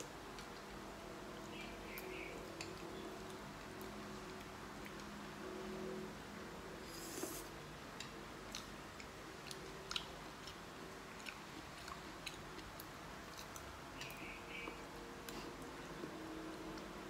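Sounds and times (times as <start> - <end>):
chewing: 8.0 - 17.0.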